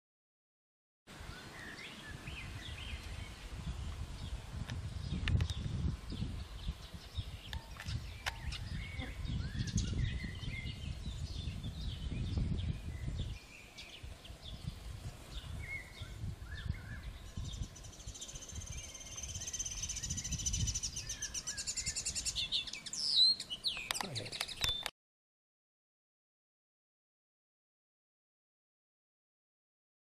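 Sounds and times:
songbirds chirping: 1.1 - 24.9.

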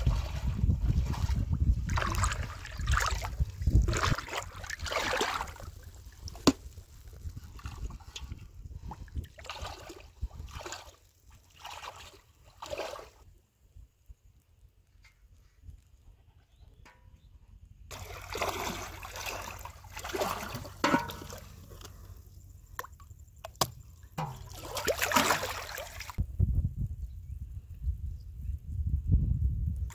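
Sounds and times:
wind rumbling on microphone: 0.0 - 11.0, 25.2 - 29.9
water sloshing and splashing: 0.0 - 13.2, 17.9 - 26.2.

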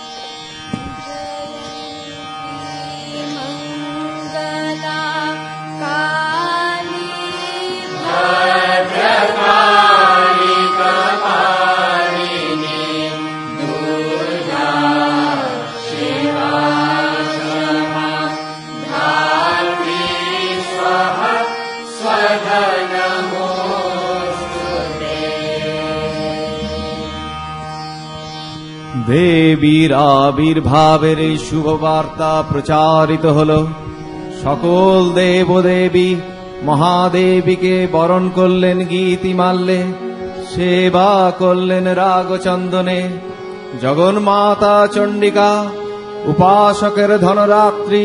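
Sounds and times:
chanted devotional singing: 0.0 - 48.0
steady drone: 0.6 - 29.5.

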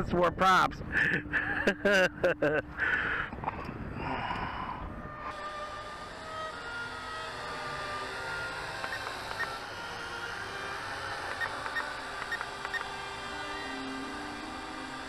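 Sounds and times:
quadcopter rotors whining: 0.0 - 15.0
short ticks: 11.3 - 12.9.

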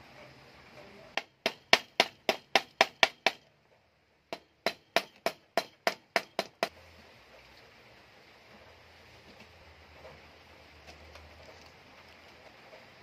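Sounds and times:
hammer striking metal: 1.2 - 3.5, 4.3 - 6.7.

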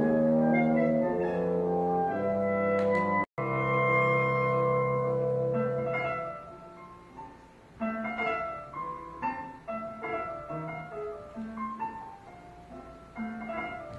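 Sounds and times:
held chord: 0.0 - 7.1
slow piano notes: 0.0 - 13.9.

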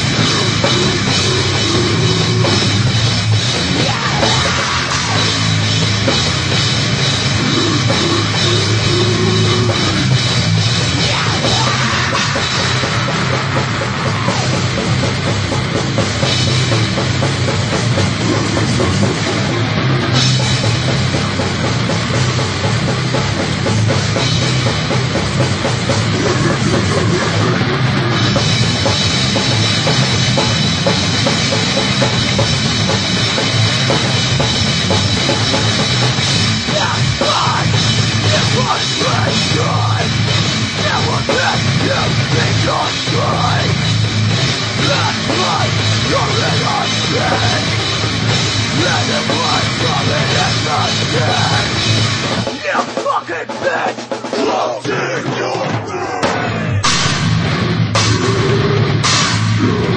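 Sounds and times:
bass drum: 0.0 - 52.9, 54.5 - 59.9
heavy metal band playing: 0.0 - 59.9.

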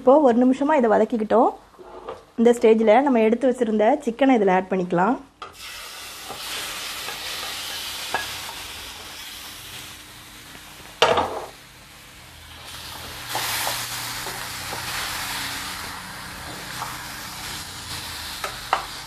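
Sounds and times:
chicken sizzling in oil: 5.5 - 19.0.

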